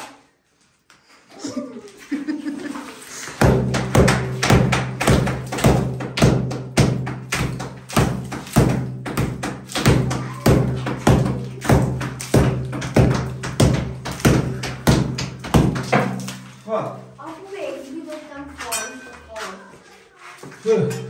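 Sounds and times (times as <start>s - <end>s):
hammer striking plaster wall: 3.3s - 16.6s.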